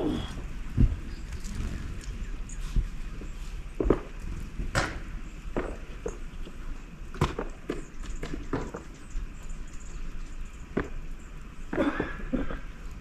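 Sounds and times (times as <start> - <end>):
footsteps crunching in snow: 1.3 - 4.7.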